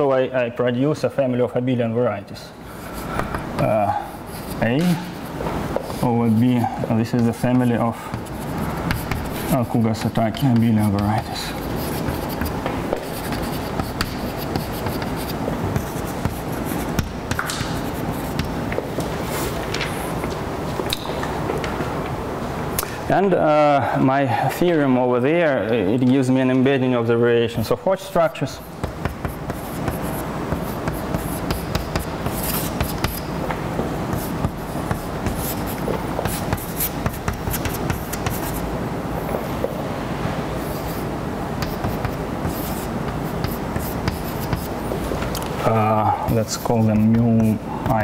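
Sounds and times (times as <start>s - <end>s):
steady low hum: 0.0s - 48.0s
chalk writing on blackboard: 2.7s - 18.7s, 28.4s - 38.7s, 40.6s - 45.2s, 46.3s - 48.0s.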